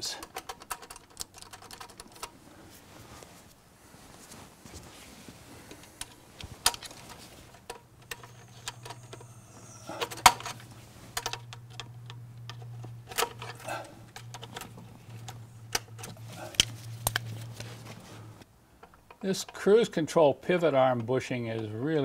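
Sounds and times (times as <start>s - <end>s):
linkage clicks and snaps: 0.2s - 2.4s, 5.7s - 9.3s, 10.0s - 17.7s.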